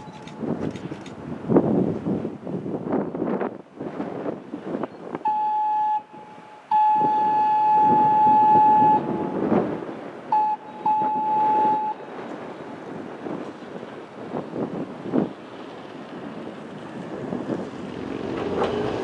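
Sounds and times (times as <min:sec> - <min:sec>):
passing train rumble: 0:00.0 - 0:19.0
train horn blasts: 0:05.2 - 0:09.6, 0:10.3 - 0:12.0.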